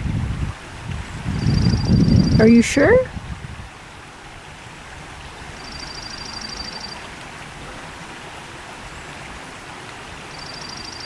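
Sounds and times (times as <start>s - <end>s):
outdoor ambience hiss: 0.0s - 11.0s
songbird trill: 1.4s - 2.5s, 5.6s - 7.1s, 10.3s - 11.0s.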